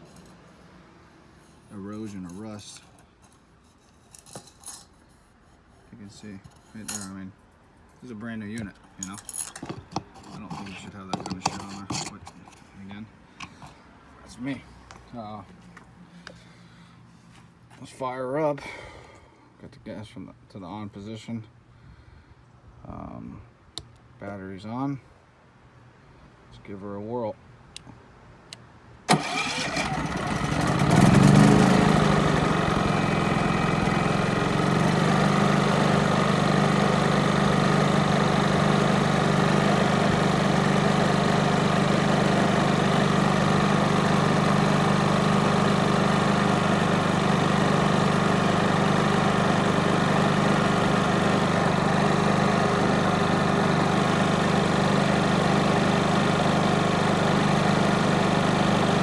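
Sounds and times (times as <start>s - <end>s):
generator electric starter: 29.1s - 59.0s
generator engine running: 29.1s - 59.0s.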